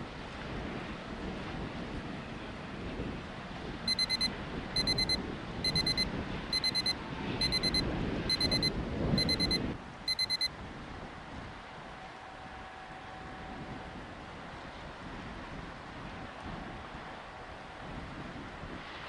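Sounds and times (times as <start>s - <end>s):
wind and water noise: 0.0s - 19.0s
alarm clock beeping: 3.9s - 6.0s, 6.6s - 10.5s.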